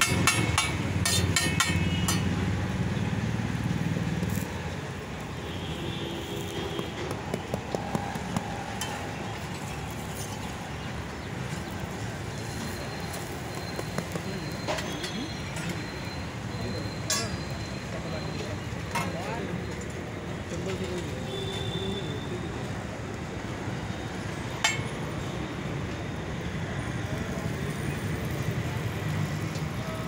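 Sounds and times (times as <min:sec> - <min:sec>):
street background noise: 0:00.0 - 0:30.0.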